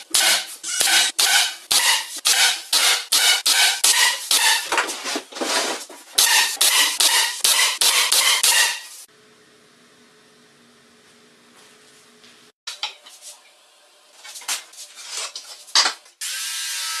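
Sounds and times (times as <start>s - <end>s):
pneumatic nailer shots: 0.0s - 4.7s, 6.2s - 8.9s.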